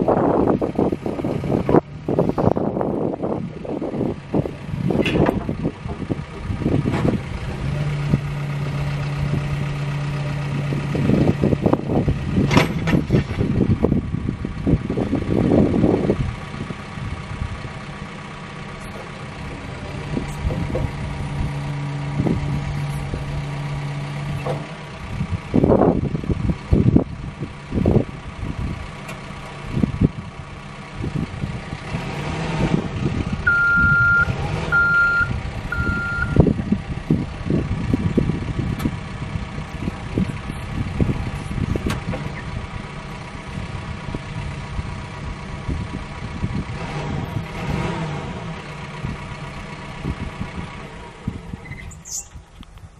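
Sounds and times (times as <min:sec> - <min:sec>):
diesel engine and hydraulics: 0:00.0 - 0:52.9
short high beeps: 0:33.5 - 0:36.4.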